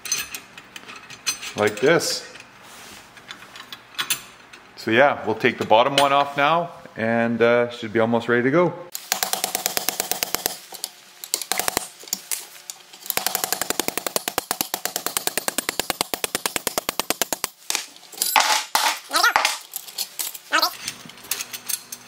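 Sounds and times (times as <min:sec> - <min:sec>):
rapid metallic clicking: 0:09.0 - 0:11.9, 0:13.0 - 0:17.9.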